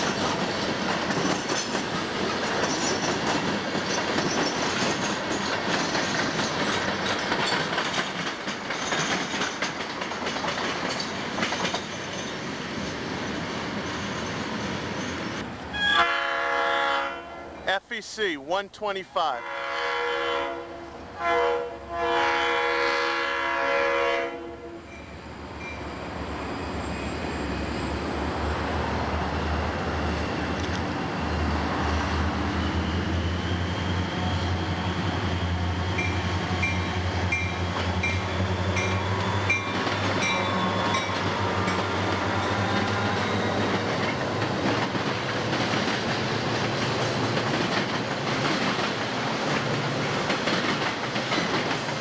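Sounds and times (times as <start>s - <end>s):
wheel clatter on rails: 0.0s - 12.4s, 43.7s - 52.0s
diesel locomotives passing: 0.0s - 52.0s
train horn blast: 15.7s - 17.6s, 19.4s - 24.9s, 40.3s - 43.7s.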